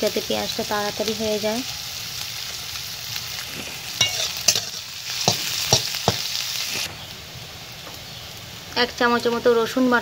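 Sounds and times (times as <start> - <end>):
onions sizzling in oil: 0.0 - 10.0
metal utensils clinking on pan: 4.0 - 6.3.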